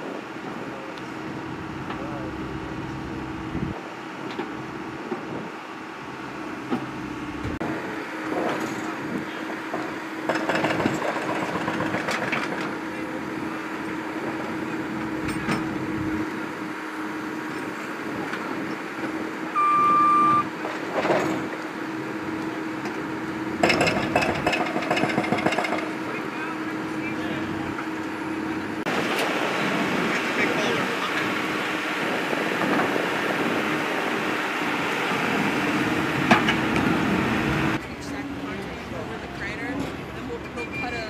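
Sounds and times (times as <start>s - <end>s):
diesel engine humming: 0.0s - 41.0s
electronic beep: 19.5s - 20.5s.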